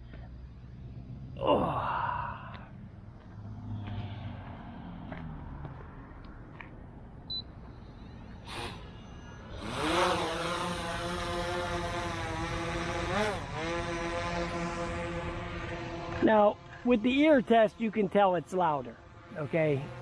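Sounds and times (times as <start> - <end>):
drone motors whining: 7.6 - 16.9
drone hovering buzz: 7.9 - 20.0.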